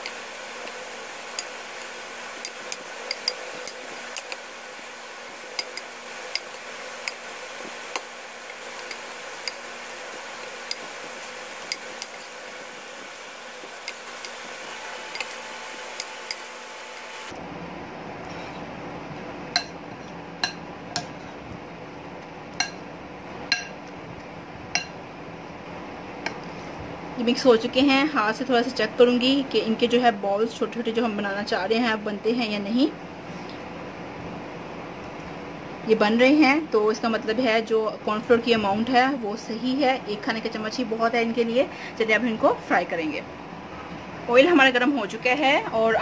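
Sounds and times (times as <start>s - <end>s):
metal spoon clinking on glass bowl: 2.4s - 4.4s, 5.6s - 7.2s, 8.8s - 9.6s, 11.6s - 12.4s, 15.1s - 15.4s, 23.5s - 23.8s.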